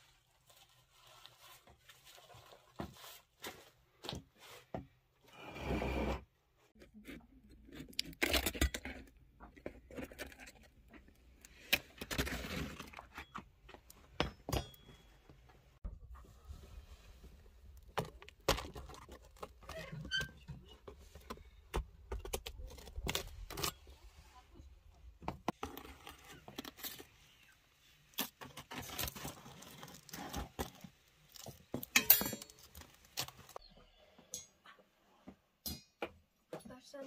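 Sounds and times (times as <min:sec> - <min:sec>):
metal rod clinking on clay oven: 0:31.9 - 0:32.6.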